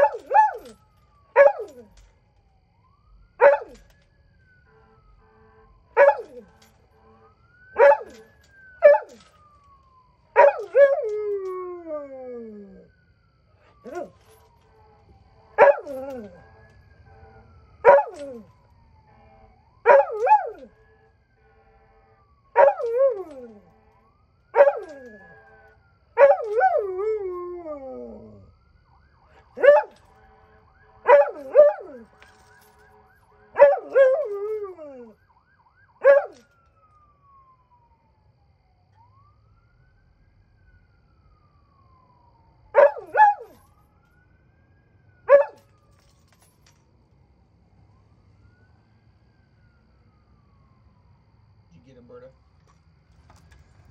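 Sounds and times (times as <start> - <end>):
distant siren wailing: 0.0 - 53.9
dog howling: 1.4 - 1.9, 13.8 - 14.1, 19.9 - 20.7, 22.6 - 23.6, 24.6 - 25.3, 26.2 - 28.5, 33.6 - 35.2.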